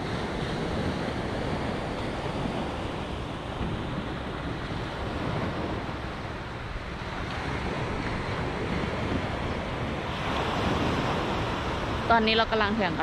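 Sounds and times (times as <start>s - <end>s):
sea surf washing on shore: 0.0s - 13.0s
wind buffeting microphone: 0.0s - 13.0s.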